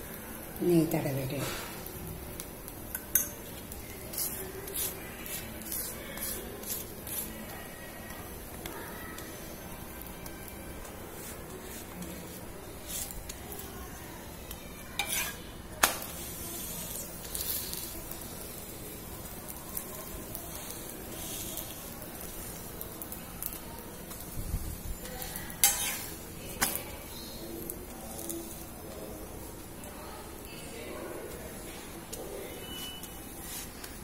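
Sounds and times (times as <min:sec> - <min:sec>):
flatbread sizzling on a griddle: 0:00.0 - 0:34.0
metal spatula scraping and tapping: 0:02.4 - 0:07.3, 0:10.1 - 0:13.6, 0:14.9 - 0:16.3, 0:25.0 - 0:26.9, 0:32.1 - 0:34.0.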